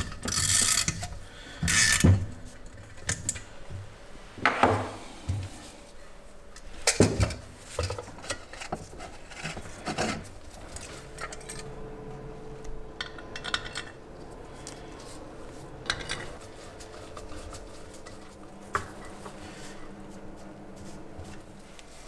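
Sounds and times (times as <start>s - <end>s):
metal scraping: 8.2s - 20.0s.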